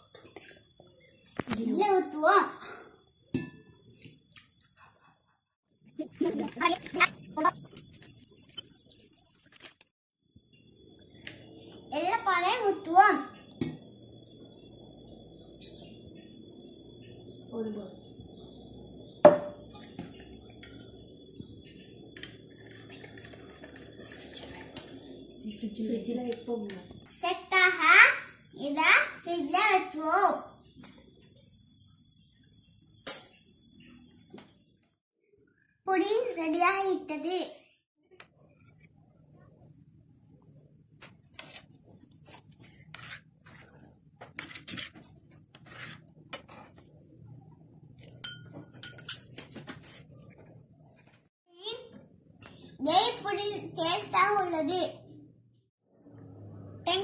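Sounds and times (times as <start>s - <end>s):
soft scraping in a bowl: 41.2s - 47.3s
metal kitchenware clanking: 48.1s - 49.5s
sharp spoon clink: 48.2s - 49.3s.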